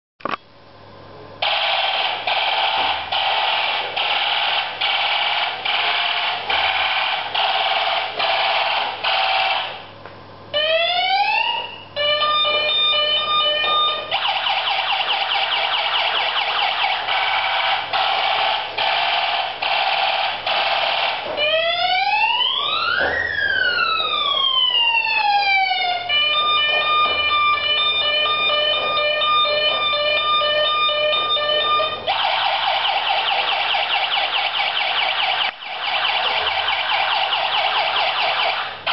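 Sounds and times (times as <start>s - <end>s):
toy electronic siren warbling: 10.6s - 38.9s.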